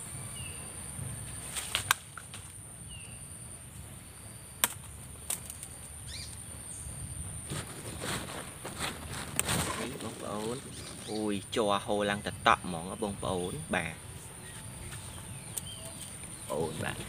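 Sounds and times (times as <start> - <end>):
high insect drone: 0.0 - 17.0
fruit stalk snapping: 1.6 - 2.6, 4.6 - 5.7.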